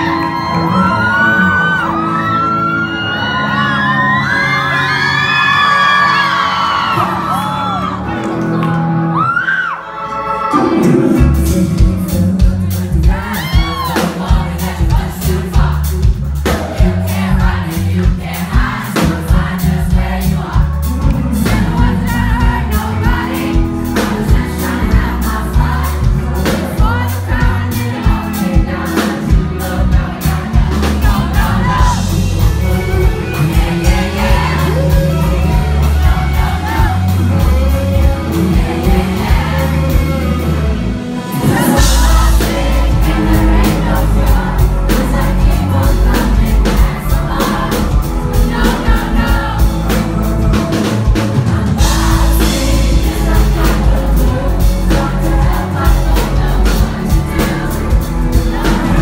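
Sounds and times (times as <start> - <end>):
live pop-rock band: 0.0 - 59.0
man singing lead vocals: 10.4 - 59.0.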